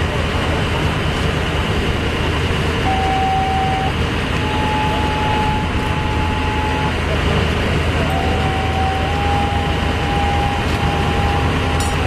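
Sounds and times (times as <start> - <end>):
engine idling: 0.0 - 12.0
thin high tone: 2.9 - 7.1.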